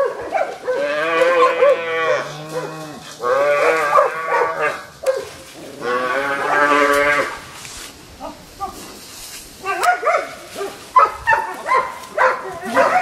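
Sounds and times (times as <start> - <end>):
cow mooing: 0.8 - 4.8, 5.8 - 7.4.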